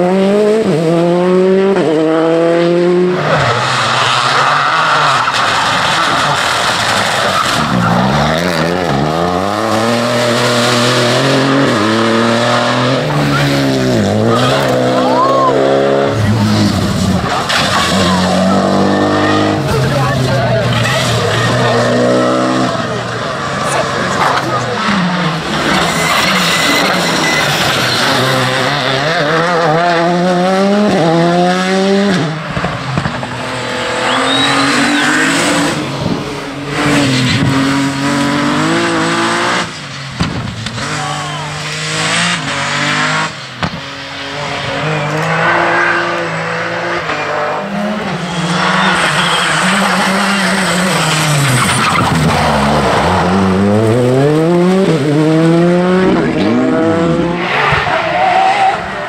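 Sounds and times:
rally car engines revving: 0.0s - 59.0s
tyres squealing: 23.6s - 28.8s, 34.0s - 35.6s, 48.1s - 53.3s.

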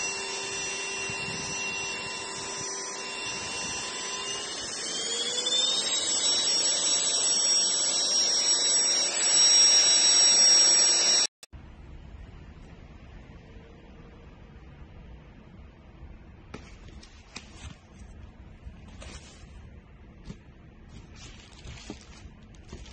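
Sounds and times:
small electric motor whining: 0.0s - 11.3s.

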